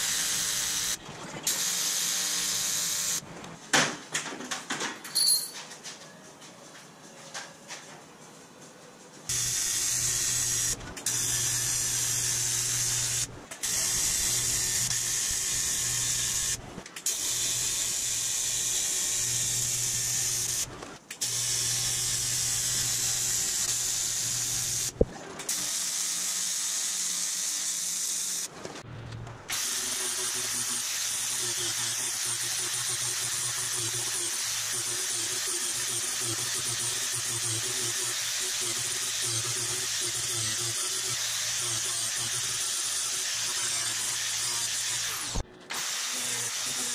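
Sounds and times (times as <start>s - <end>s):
welding arc buzzing: 0.0s - 3.2s, 9.3s - 28.5s, 29.5s - 46.9s
sanding disc grinding whine: 29.5s - 45.4s.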